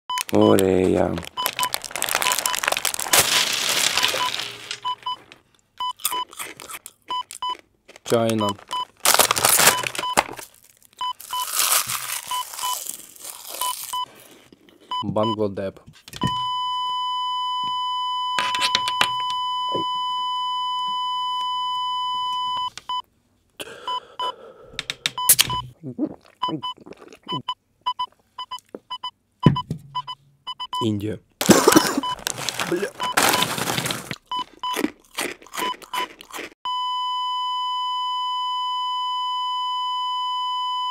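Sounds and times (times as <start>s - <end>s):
crunchy chewing of snack: 0.2s - 14.9s, 31.4s - 36.6s
heart monitor flatline tone: 19.1s - 23.0s.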